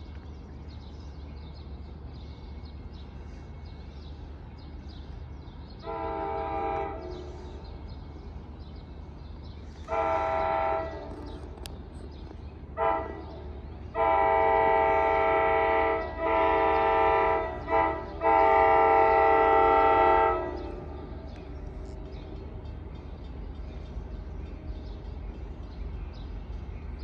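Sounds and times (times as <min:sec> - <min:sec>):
distant train air horn: 0:05.8 - 0:07.8, 0:09.8 - 0:11.6, 0:12.7 - 0:21.5.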